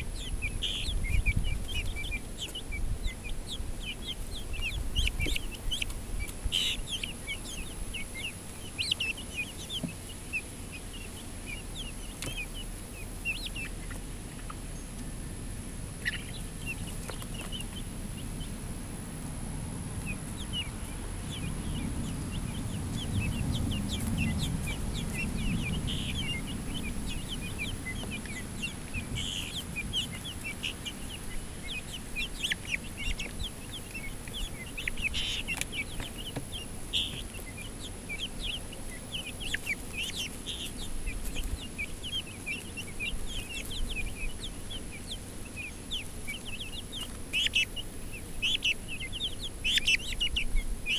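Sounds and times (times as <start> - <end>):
chicks peeping and clucking: 0.0 - 50.9
low rumble: 18.5 - 30.3.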